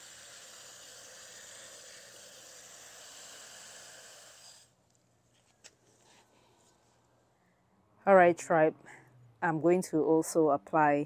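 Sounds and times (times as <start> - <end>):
hose spraying water on soil: 0.0 - 4.7.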